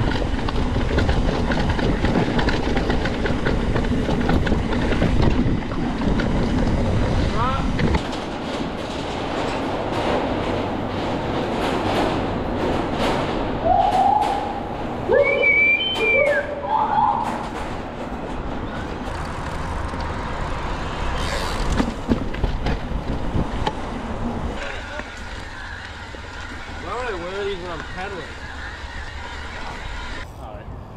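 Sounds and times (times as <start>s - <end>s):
wind and tyre noise: 0.0s - 30.9s
short whistle-like tones: 13.7s - 17.3s.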